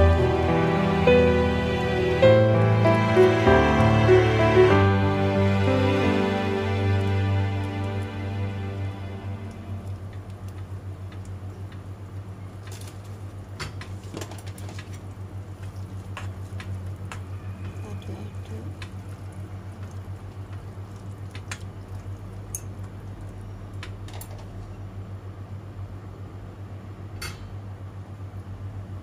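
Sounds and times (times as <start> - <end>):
low hum: 0.0 - 12.0
soup simmering in a pan: 0.3 - 24.5.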